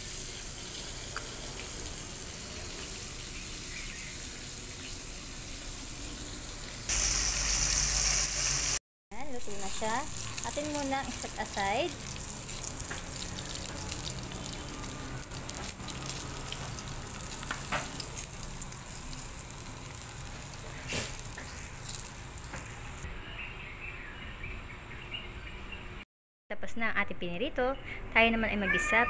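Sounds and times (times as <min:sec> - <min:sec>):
fish sizzling in hot oil: 0:00.0 - 0:23.0.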